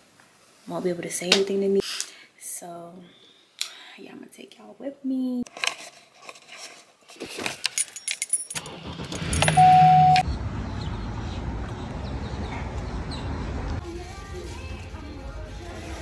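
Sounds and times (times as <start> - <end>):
keys jangling: 7.6 - 9.7
loud steady tone: 9.5 - 10.2.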